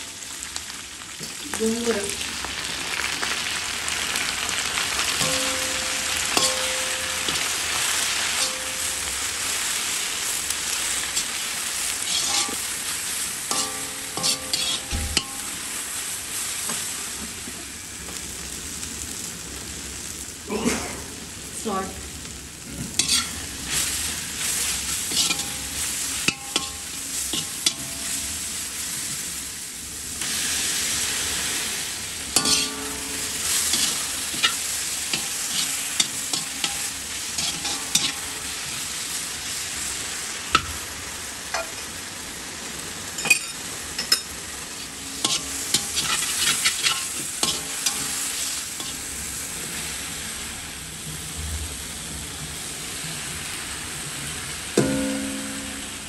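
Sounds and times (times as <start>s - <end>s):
food sizzling in oil: 0.0s - 56.0s
metal spatula scraping pan: 5.2s - 9.1s, 12.0s - 12.8s, 13.5s - 15.4s, 23.0s - 28.1s, 32.4s - 38.8s, 43.2s - 49.0s.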